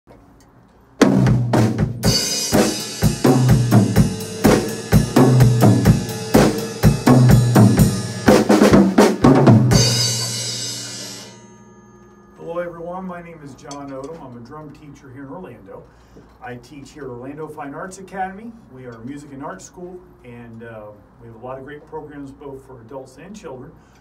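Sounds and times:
drum kit groove: 1.0s - 11.4s
cymbal crash ringing: 1.9s - 14.3s.

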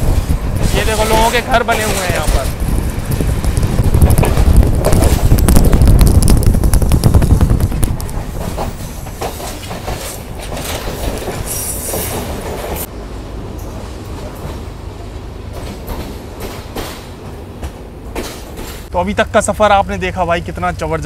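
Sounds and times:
train wheels clattering over rail joints: 0.0s - 12.9s, 15.5s - 18.9s.

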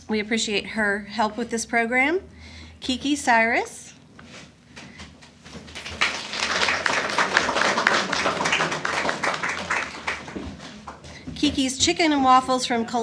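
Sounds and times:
audience applause: 5.7s - 11.0s.

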